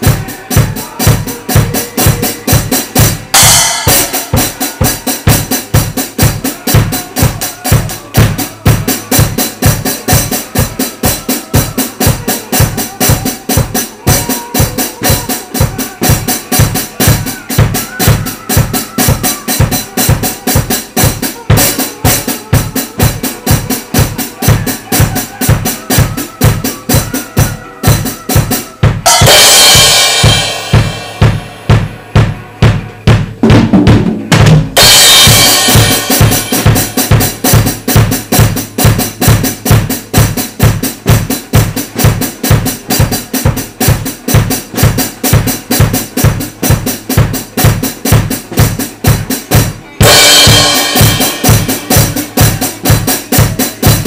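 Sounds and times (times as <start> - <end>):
drum kit beat: 0.0 - 54.0
cymbal crash: 3.0 - 6.0, 29.0 - 32.8, 34.8 - 38.1, 50.0 - 53.5.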